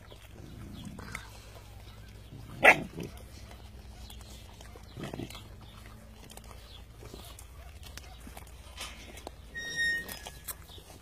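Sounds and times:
puppy barking: 0:01.9 - 0:05.4, 0:07.0 - 0:08.5.

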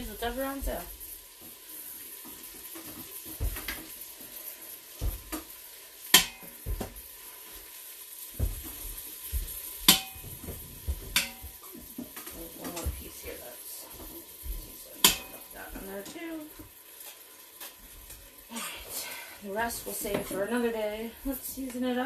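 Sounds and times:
soft thuds: 0:08.4 - 0:09.6
tongs clinking against metal pot: 0:09.9 - 0:10.2, 0:11.1 - 0:12.9, 0:15.0 - 0:16.2.

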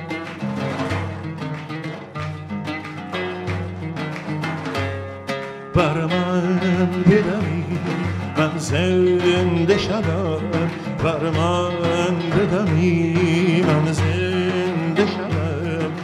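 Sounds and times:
frame drum: 0:00.0 - 0:16.0
oud melody: 0:00.0 - 0:16.0.

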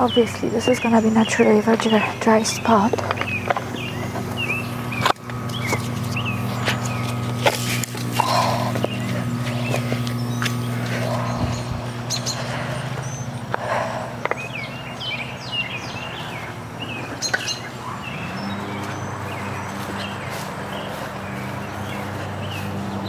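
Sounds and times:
small birds chirping: 0:00.0 - 0:23.0
steady low hum: 0:00.0 - 0:23.0.

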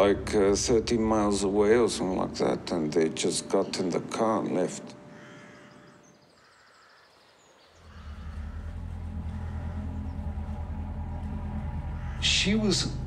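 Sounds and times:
low rumbling drone: 0:00.0 - 0:03.0, 0:07.8 - 0:13.0.

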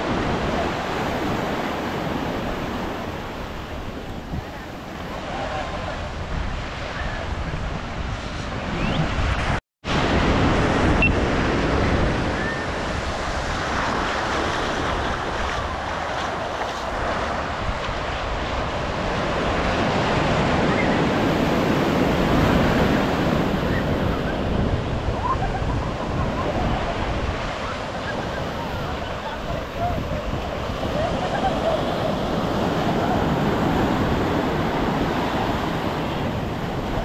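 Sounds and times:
ocean waves breaking: 0:00.0 - 0:37.0
wind buffeting microphone: 0:00.0 - 0:37.0.

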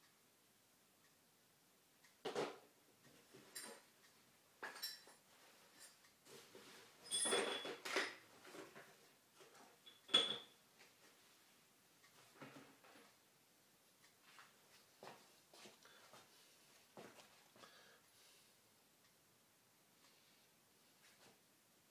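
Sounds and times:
metal parts clinking in plastic tub: 0:07.0 - 0:08.2.

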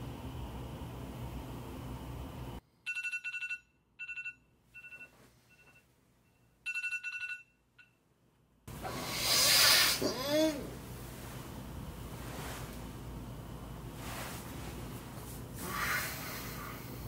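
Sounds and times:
phone alarm trilling: 0:02.9 - 0:07.9.

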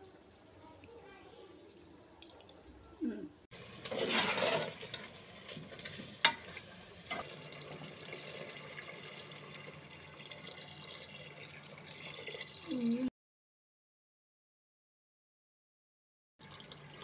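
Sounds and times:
water pouring into a pot: 0:03.5 - 0:13.1, 0:16.4 - 0:17.0.

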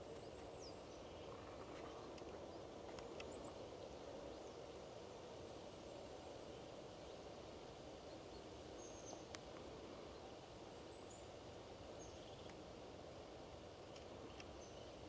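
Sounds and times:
steady low hiss: 0:00.0 - 0:15.0
small click: 0:09.2 - 0:09.7, 0:12.4 - 0:12.6, 0:13.9 - 0:14.6.

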